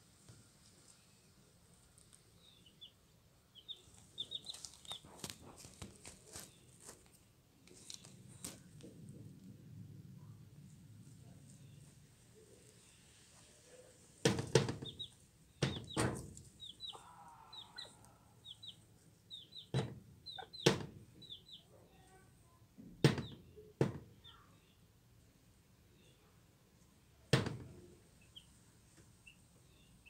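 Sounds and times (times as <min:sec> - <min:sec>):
chick peeping: 0:02.4 - 0:05.8, 0:14.6 - 0:22.2, 0:28.1 - 0:28.6
hen clucking: 0:16.6 - 0:21.7.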